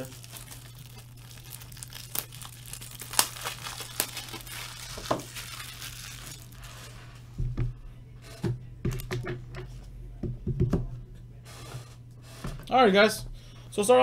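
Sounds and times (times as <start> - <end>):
plastic packaging crinkling and tearing: 0.0 - 7.0.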